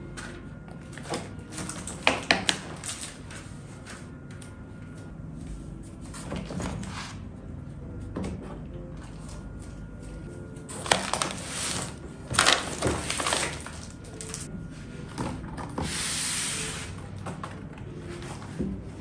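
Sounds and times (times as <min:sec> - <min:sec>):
folders and papers rustling: 0:00.0 - 0:19.0.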